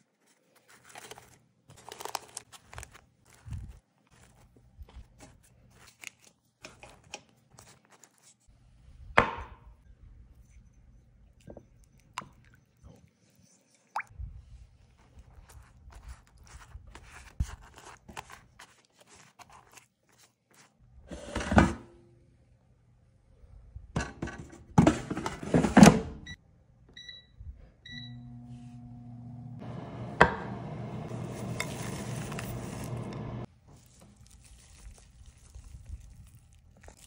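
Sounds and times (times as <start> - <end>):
brush dabbing butter: 14.8 - 20.8, 33.7 - 37.0
air fryer beeps: 26.2 - 29.3
air fryer fan humming: 27.9 - 33.4.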